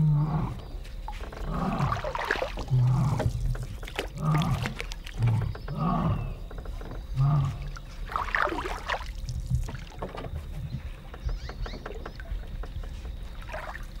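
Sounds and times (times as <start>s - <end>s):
lion roaring: 0.0s - 6.5s, 7.1s - 7.8s.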